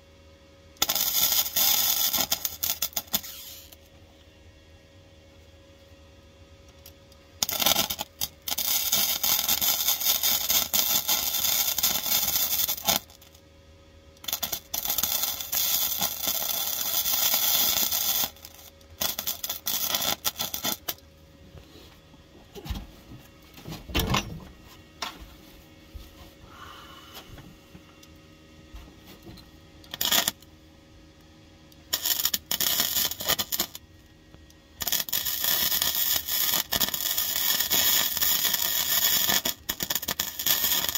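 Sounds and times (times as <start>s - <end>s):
welder crackling: 0.8s - 3.8s, 6.7s - 13.4s, 14.2s - 21.1s, 29.8s - 30.5s, 31.7s - 33.8s, 34.4s - 40.9s.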